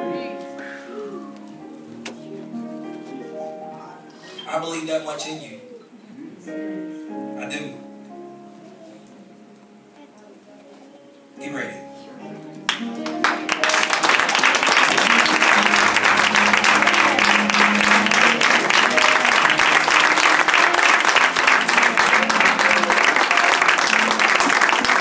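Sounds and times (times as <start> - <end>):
soft instrumental music: 0.0 - 25.0
congregation applauding: 12.7 - 25.0.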